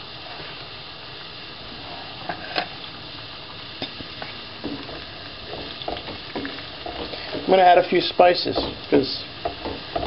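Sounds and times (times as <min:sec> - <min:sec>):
food sizzling in a frying pan: 0:00.0 - 0:10.0
wooden spatula scraping a pan: 0:04.3 - 0:10.0.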